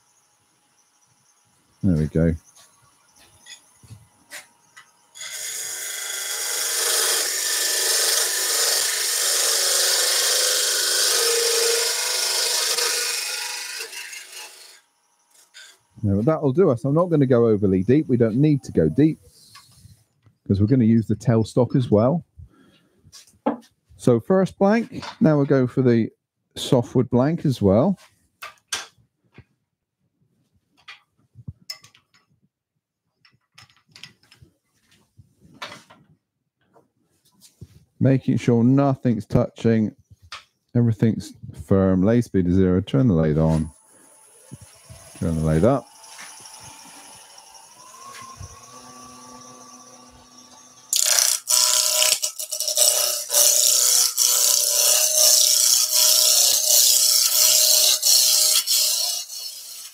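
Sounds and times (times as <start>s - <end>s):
wood lathe humming: 4.3s - 16.2s, 43.7s - 59.9s
lathe tool shaving wood: 5.2s - 19.2s, 43.4s - 59.9s.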